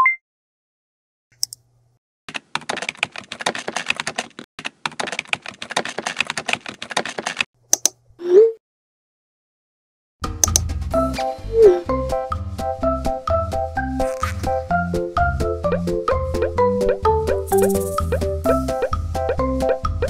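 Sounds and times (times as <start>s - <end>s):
rapid typing on keyboard: 2.3s - 7.5s
single click: 10.4s - 10.7s.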